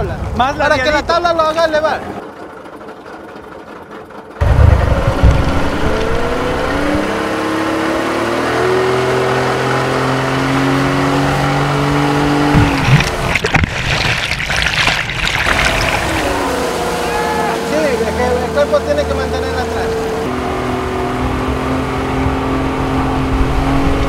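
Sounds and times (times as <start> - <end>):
boat engine accelerating: 1.3 - 24.0
rushing noise: 4.4 - 7.3.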